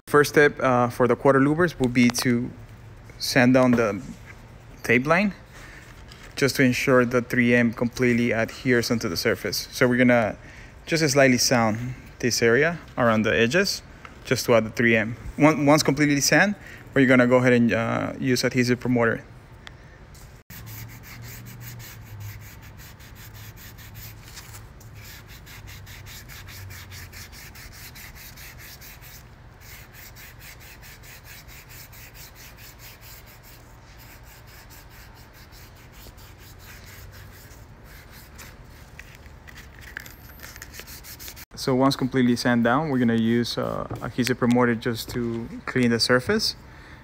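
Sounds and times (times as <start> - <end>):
hand sanding scraping: 20.5 - 41.5.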